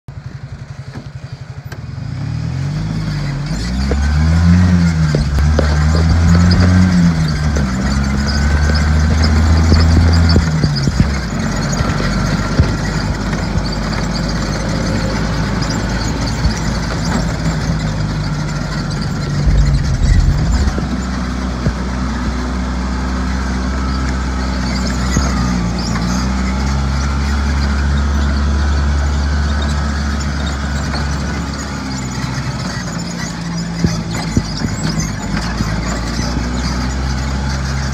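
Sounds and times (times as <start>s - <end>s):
utility vehicle engine driving: 0.2s - 37.9s
low thump: 19.3s - 21.2s.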